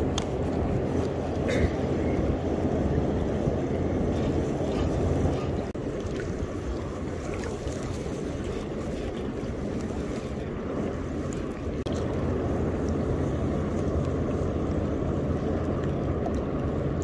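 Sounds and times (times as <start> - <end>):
water lapping: 0.0 - 17.0
wind on microphone: 0.0 - 17.0.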